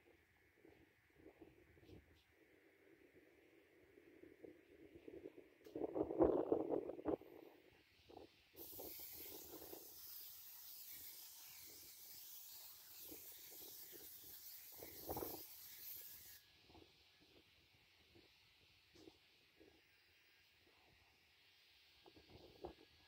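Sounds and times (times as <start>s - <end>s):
spray gun hissing: 8.6s - 16.4s.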